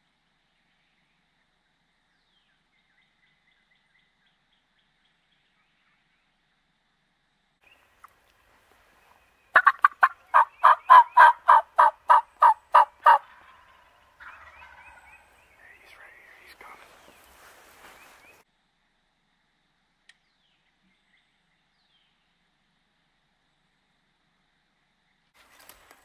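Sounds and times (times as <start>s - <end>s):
turkey yelping: 9.5s - 15.0s.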